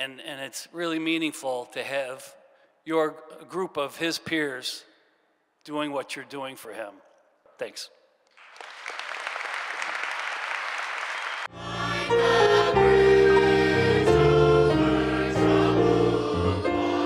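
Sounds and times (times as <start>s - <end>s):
audience applauding: 8.4s - 11.5s
children's choir singing: 11.4s - 17.0s
low instrumental accompaniment: 11.5s - 17.0s.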